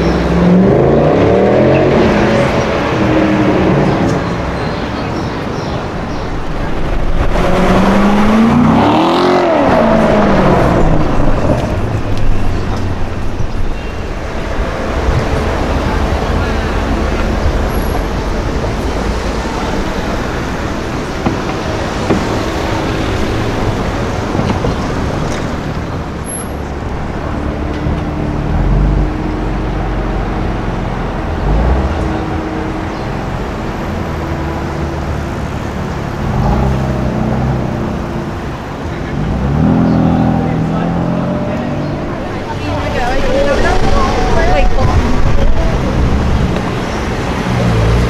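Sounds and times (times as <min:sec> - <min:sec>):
car engines in slow traffic: 0:00.0 - 0:48.0.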